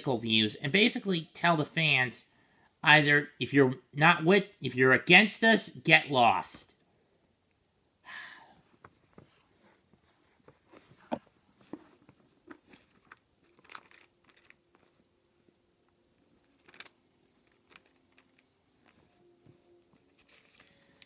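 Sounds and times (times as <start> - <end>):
crinkly rustling: 9.2 - 15.0, 16.5 - 21.0.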